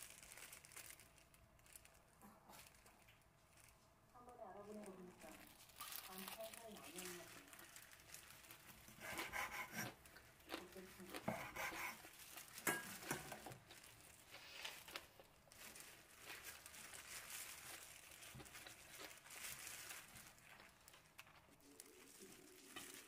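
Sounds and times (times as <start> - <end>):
rustling and crinkling: 0.0 - 23.0.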